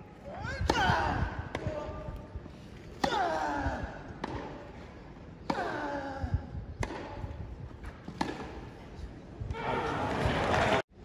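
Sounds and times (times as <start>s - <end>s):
rackets hitting tennis ball: 2.8s - 9.0s.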